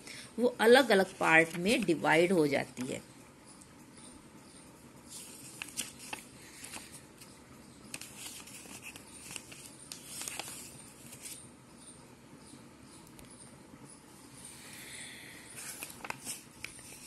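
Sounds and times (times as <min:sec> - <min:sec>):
paper rustling: 0:01.0 - 0:01.9, 0:05.1 - 0:07.3, 0:07.9 - 0:11.4, 0:15.6 - 0:17.0.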